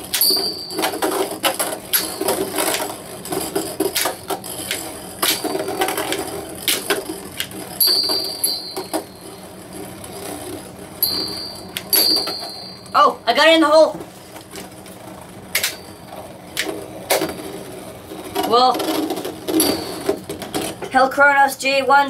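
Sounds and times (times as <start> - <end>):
spinning tops clashing: 0.0 - 9.4, 11.0 - 13.0, 19.4 - 20.5
spinning tops whirring: 0.0 - 13.4, 14.4 - 20.8.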